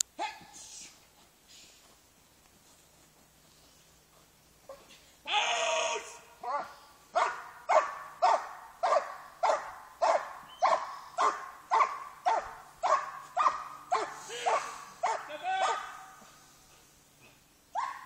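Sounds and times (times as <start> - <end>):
dog barking: 6.4 - 16.2, 17.8 - 18.0.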